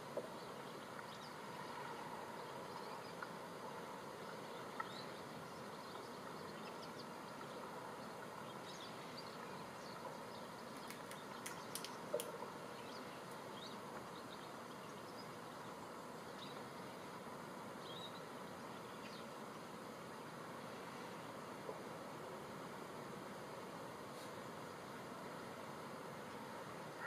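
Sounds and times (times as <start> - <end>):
distant bird calls: 0.0 - 19.9, 26.3 - 27.0
outdoor background hiss: 0.0 - 27.0
sharp clicks: 10.8 - 12.4.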